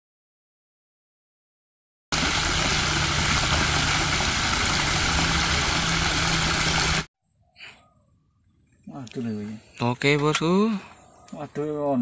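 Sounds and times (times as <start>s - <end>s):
churning water rushing: 2.1s - 7.1s.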